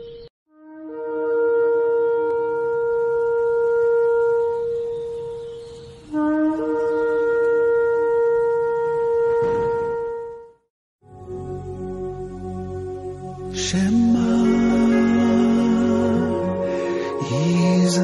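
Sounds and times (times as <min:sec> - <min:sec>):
shofar blasts: 0:00.5 - 0:05.4, 0:06.1 - 0:10.6.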